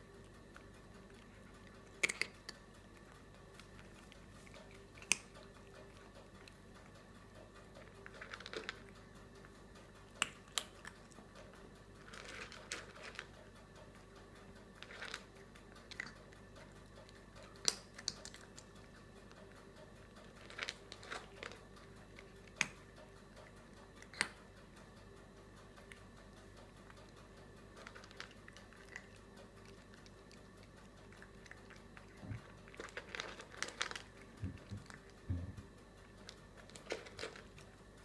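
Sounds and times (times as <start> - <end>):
cat chewing: 0.0 - 38.0.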